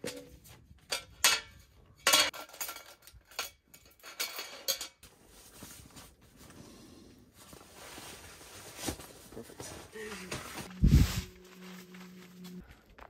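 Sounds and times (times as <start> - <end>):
metal camp table clanking: 0.0 - 5.0
soft rustling: 7.3 - 12.6.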